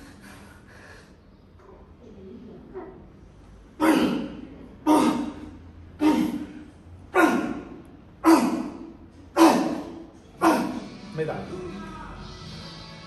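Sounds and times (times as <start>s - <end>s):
sharp breathy exhalations: 0.0s - 1.4s.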